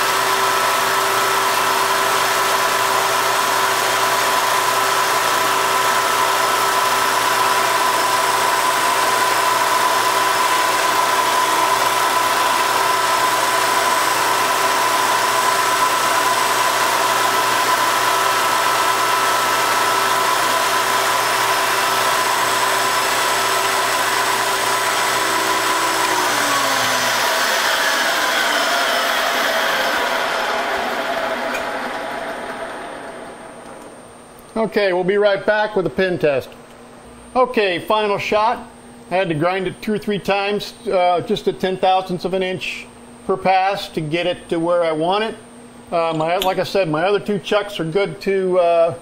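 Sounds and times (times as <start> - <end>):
grinder motor spinning down: 0.0 - 34.0
grinder high whine: 0.0 - 34.2.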